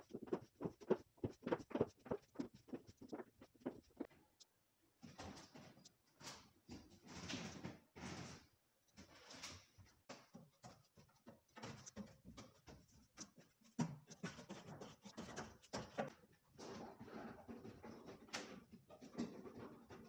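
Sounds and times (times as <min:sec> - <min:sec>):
hands and feet striking apparatus: 0:00.0 - 0:04.1.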